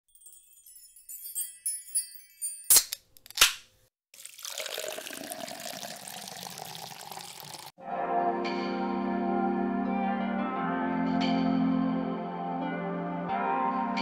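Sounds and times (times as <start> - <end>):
twinkling chime notes: 0.1 - 2.8
carbonated soda fizzing: 4.1 - 7.7.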